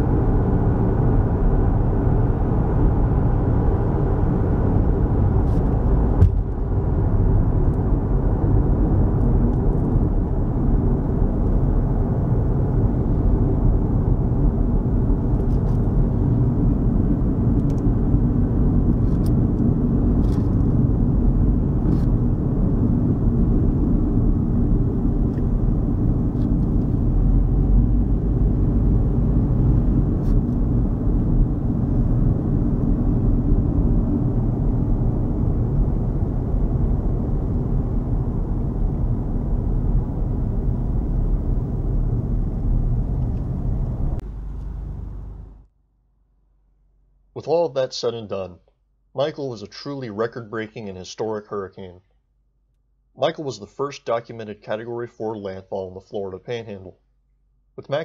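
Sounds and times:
car driving heard from inside: 0.0 - 45.7.

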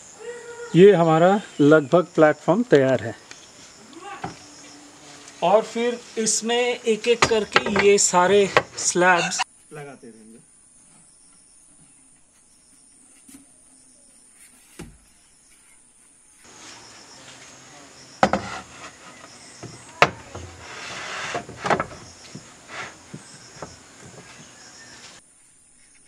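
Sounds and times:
wooden boards knocking: 7.1 - 9.1, 18.2 - 24.6
board scraping as slid: 18.2 - 25.2.

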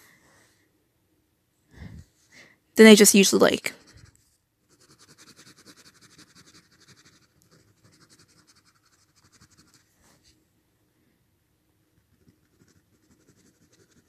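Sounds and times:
pen scratching on paper: 3.7 - 9.9, 12.1 - 14.0.

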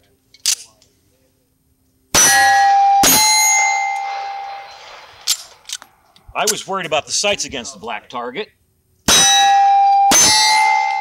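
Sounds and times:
steel target ringing: 2.1 - 5.6, 9.1 - 11.0
pistol shots: 2.2 - 6.1.

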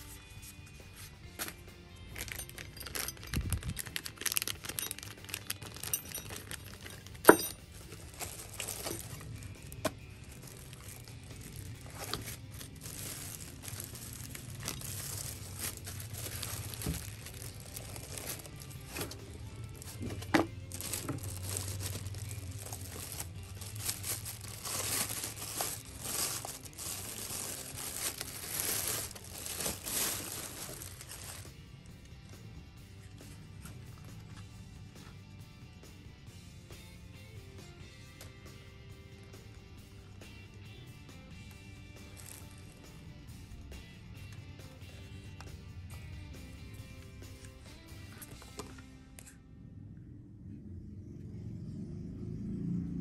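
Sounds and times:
light crinkling: 2.1 - 31.5
small hard objects clinking: 2.1 - 31.5.

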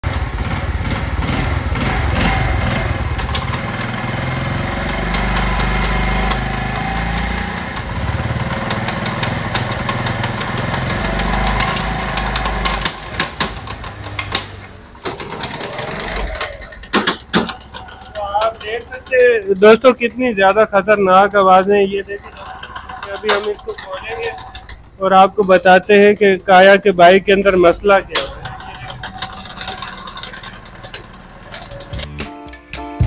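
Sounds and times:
gearbox knocking rattle: 0.0 - 32.2
motorcycle engine running: 0.0 - 32.2
scattered clicks: 16.1 - 20.0.

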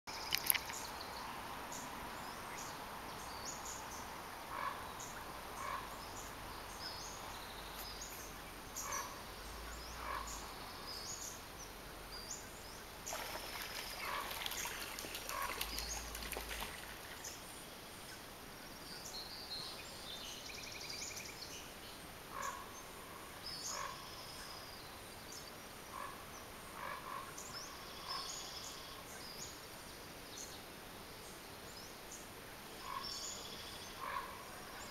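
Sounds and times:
birds chirping: 0.1 - 18.2
steady background hiss: 0.1 - 34.9.

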